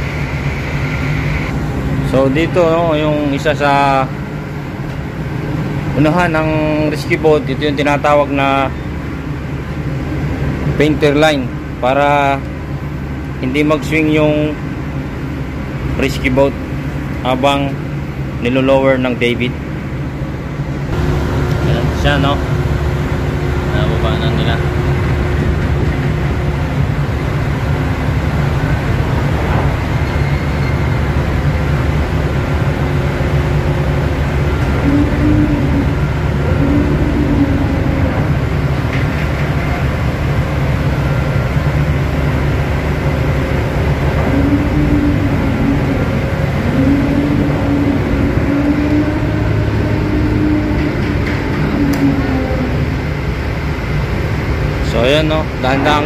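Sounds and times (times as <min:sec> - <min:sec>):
faint wavering whine: 0:00.0 - 0:04.9, 0:16.2 - 0:56.0
low mechanical rumble: 0:00.0 - 0:56.0.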